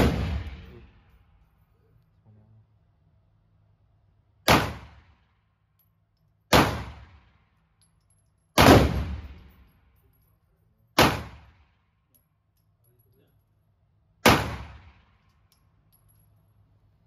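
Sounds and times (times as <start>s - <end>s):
pistol shots: 0.0s - 0.7s, 4.4s - 5.2s, 6.5s - 7.3s, 8.6s - 9.5s, 11.0s - 11.7s, 14.2s - 15.2s.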